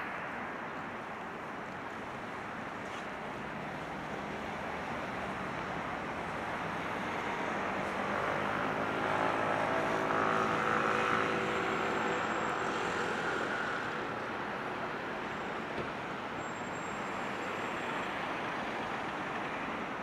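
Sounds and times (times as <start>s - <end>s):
city background noise: 0.0s - 20.0s
passing engine droning hum: 3.2s - 16.3s.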